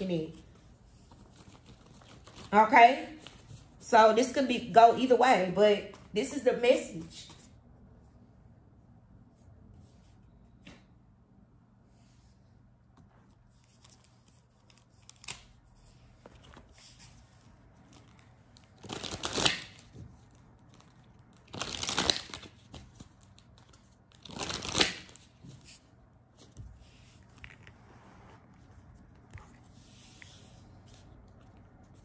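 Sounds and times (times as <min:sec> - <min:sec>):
cards being shuffled: 0:01.0 - 0:02.5, 0:17.9 - 0:25.8.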